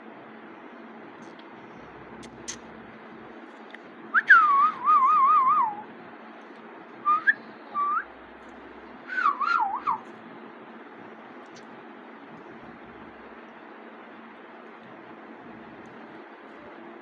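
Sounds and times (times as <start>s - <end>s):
parakeet whistling: 9.1s - 10.1s.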